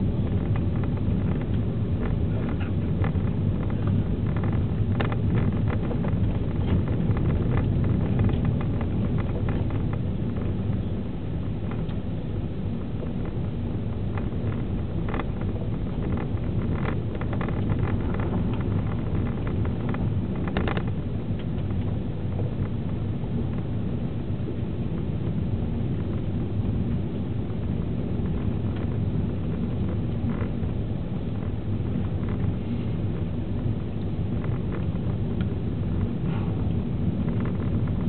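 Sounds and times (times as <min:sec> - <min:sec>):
light clicks and rattles: 0:00.0 - 0:12.0, 0:13.0 - 0:23.0
car engine drone in cabin: 0:00.0 - 0:38.0
tyre and road noise: 0:00.0 - 0:38.0.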